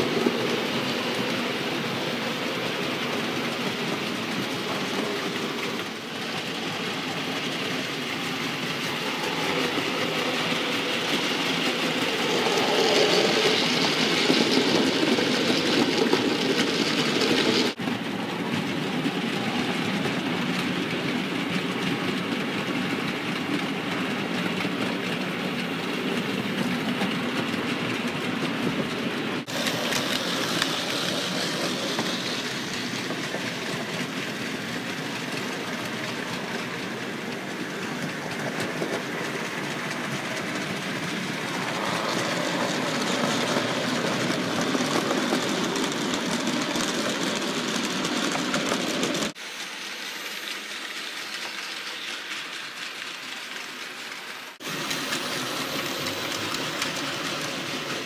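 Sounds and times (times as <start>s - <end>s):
wheels clicking over rail joints: 0.0s - 58.0s
model train motor whirring: 29.5s - 58.0s.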